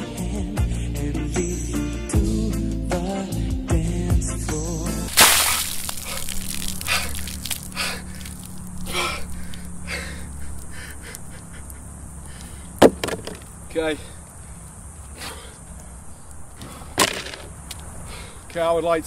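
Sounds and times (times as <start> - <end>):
background music: 0.0 - 5.2
liquid splashing onto asphalt: 5.1 - 9.8
man gasping and panting: 6.0 - 12.8.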